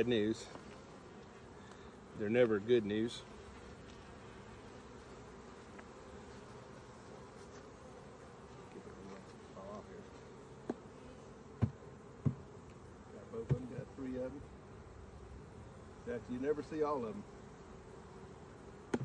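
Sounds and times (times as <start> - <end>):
honeybees humming: 0.0 - 19.0
wooden hive frames knocking: 11.6 - 12.5, 13.4 - 13.9.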